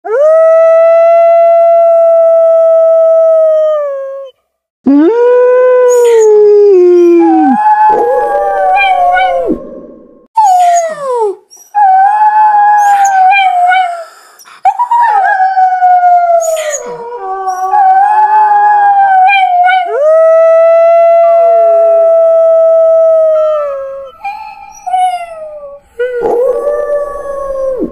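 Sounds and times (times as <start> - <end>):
wolves howling: 5.5 - 10.3, 14.9 - 27.9.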